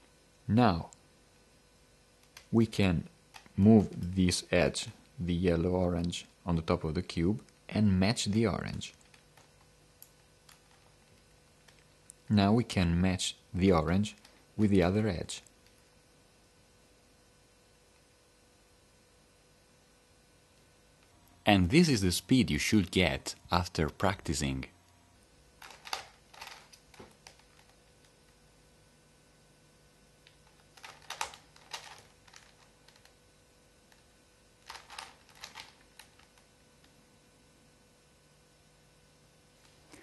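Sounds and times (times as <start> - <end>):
faint steady hiss: 0.0 - 40.0.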